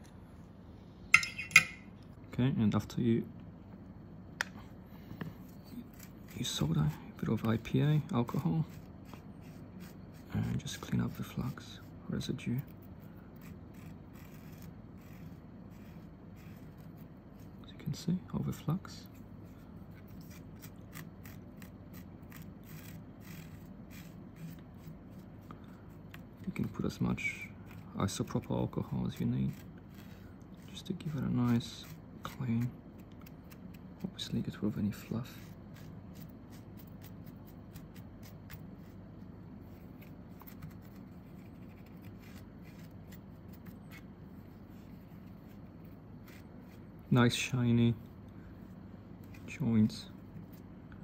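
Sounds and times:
cotton swab scrubbing circuit board: 5.8 - 11.6, 12.5 - 17.7, 20.0 - 47.4.

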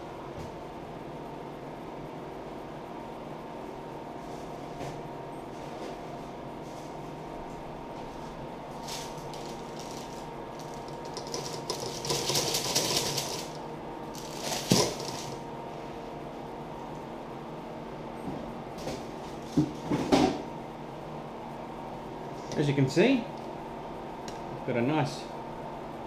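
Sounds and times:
baking paper crinkling: 8.2 - 13.6, 14.2 - 15.4.

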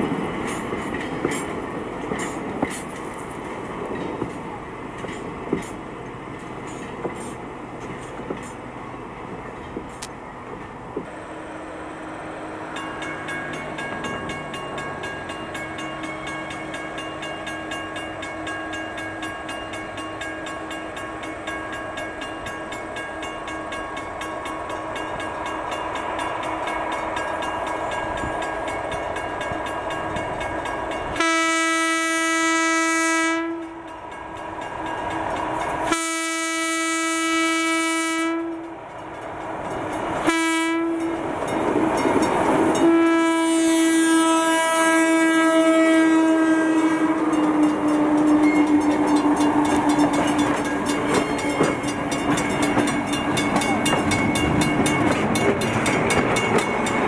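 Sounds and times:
diesel locomotive engine drone: 0.0 - 57.0
locomotive air horn blasts: 31.1 - 33.9, 35.8 - 38.7, 40.2 - 41.2, 42.8 - 50.2.

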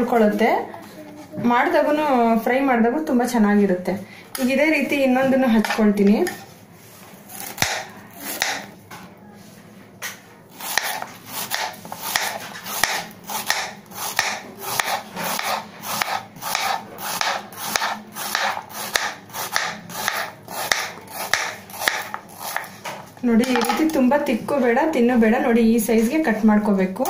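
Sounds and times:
knife slicing banana on board: 10.0 - 23.0.

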